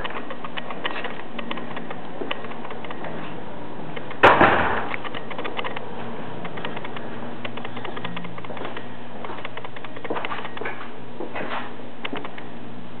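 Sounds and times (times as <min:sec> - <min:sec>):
faint scattered clicking: 0:04.9 - 0:10.6.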